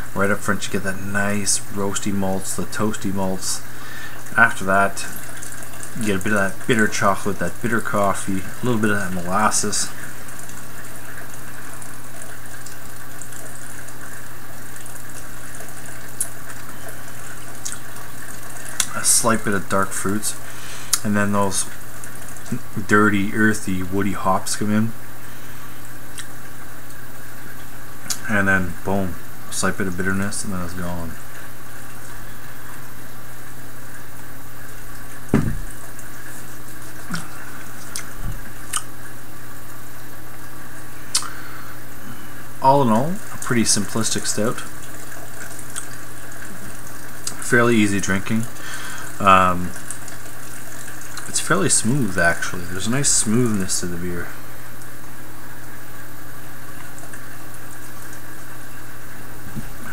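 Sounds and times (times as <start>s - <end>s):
steady hiss: 14.2s - 59.9s
mouth clicks and lip smacks: 26.1s - 26.4s, 28.0s - 28.2s, 37.1s - 38.1s, 38.7s - 38.9s, 41.1s - 41.4s
person swallowing: 41.1s - 41.5s.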